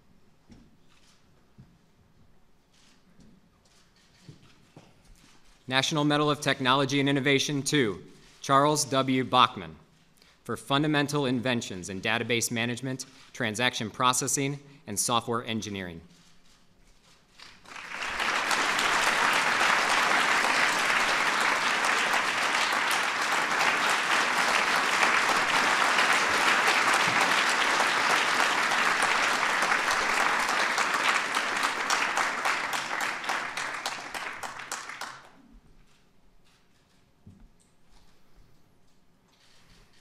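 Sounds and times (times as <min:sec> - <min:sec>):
audience applauding: 0:17.4 - 0:35.4.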